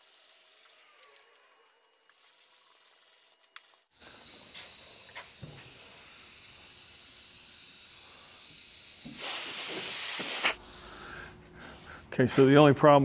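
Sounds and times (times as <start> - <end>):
sprayer hissing: 2.0 - 12.2.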